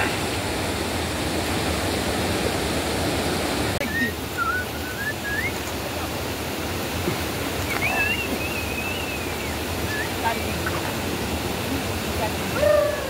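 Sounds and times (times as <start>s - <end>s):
river rapids rushing over rocks: 0.0s - 13.0s
sliding whistled calls: 3.8s - 5.7s, 7.6s - 10.8s.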